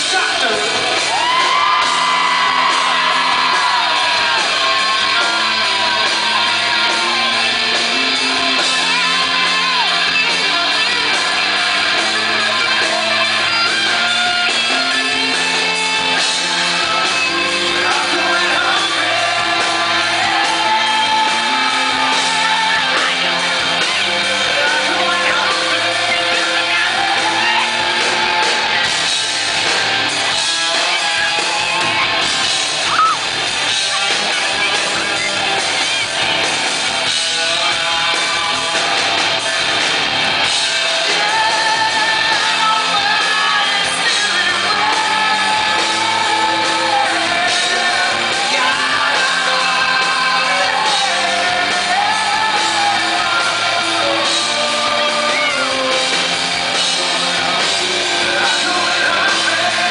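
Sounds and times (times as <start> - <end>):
drums: 0.0 - 59.9
electric guitar: 0.0 - 59.9
man singing: 2.5 - 27.7, 37.1 - 39.2, 40.6 - 59.9.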